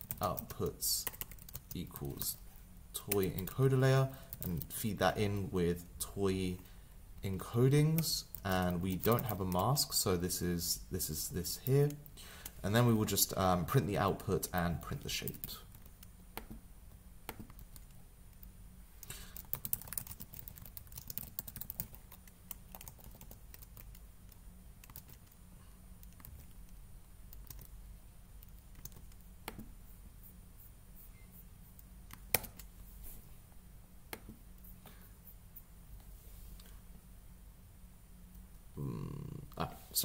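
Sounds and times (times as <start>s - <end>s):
computer keyboard typing: 0.0s - 2.3s, 4.3s - 4.7s, 7.9s - 9.6s, 19.3s - 25.4s, 26.0s - 27.7s, 28.4s - 29.7s.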